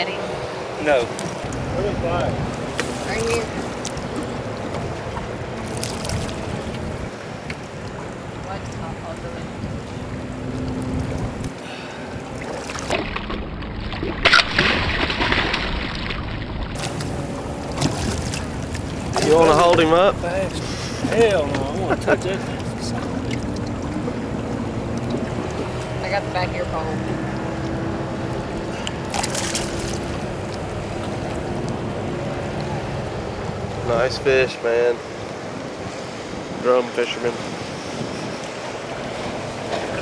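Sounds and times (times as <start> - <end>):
boat motor rumble: 0.0 - 40.0
fish thrashing and splashing water: 2.6 - 6.8, 10.5 - 21.6, 27.0 - 32.4.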